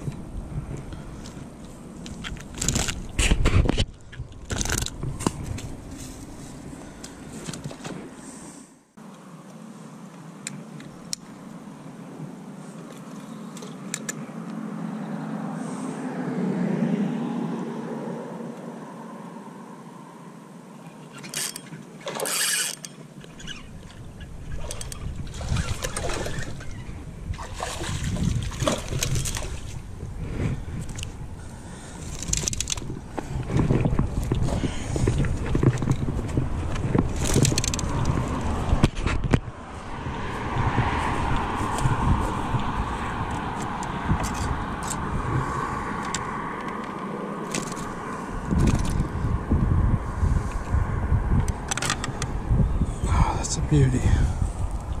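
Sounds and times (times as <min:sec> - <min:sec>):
low rumbling handling noise: 0:00.0 - 0:08.2, 0:21.1 - 0:55.0
road traffic hum: 0:00.0 - 0:55.0
water splashing and sloshing: 0:21.0 - 0:49.1.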